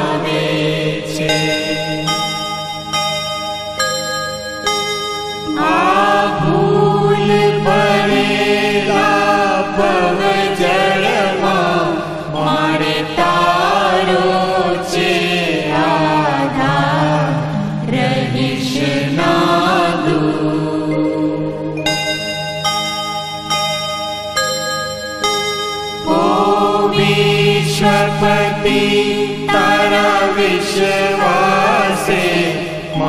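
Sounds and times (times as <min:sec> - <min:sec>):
voices chanting a hymn: 0:00.0 - 0:02.7, 0:05.5 - 0:21.9, 0:26.0 - 0:33.0.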